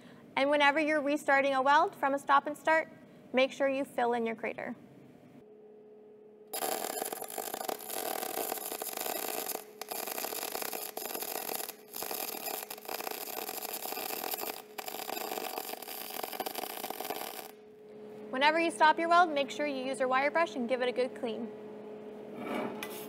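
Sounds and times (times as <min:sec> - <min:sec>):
welding arc crackling: 0:06.5 - 0:17.6.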